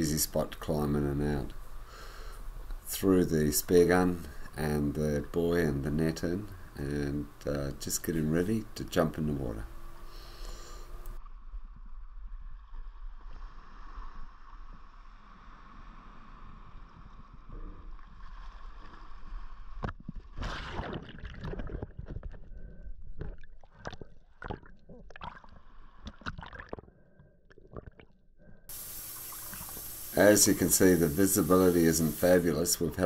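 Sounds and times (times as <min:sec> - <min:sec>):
underwater bubbling: 0:28.7 - 0:30.2.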